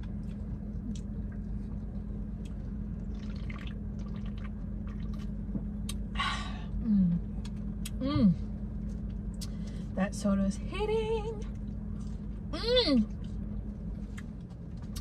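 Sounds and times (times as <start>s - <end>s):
person sipping and swallowing: 3.0s - 5.3s.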